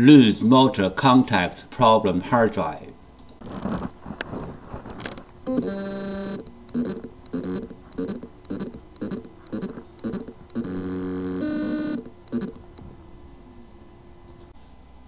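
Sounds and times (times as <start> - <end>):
hard drive motor whirring: 4.9 - 13.0.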